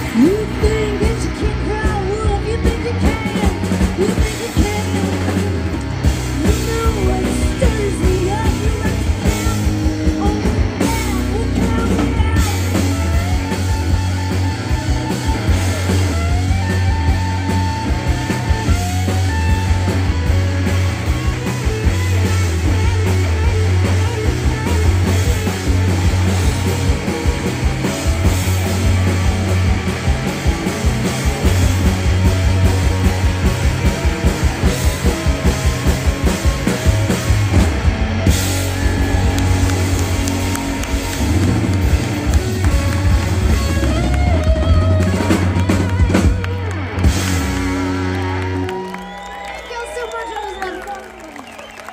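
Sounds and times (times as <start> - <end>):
drums pounding steady beat: 0.0 - 51.9
live rock band: 0.0 - 51.9
sliding lead guitar: 0.0 - 51.9.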